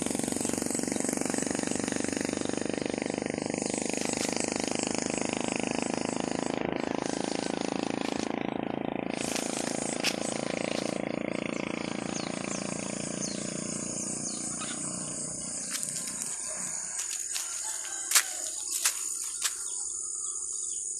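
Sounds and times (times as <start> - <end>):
vehicle engine running: 0.0 - 20.9.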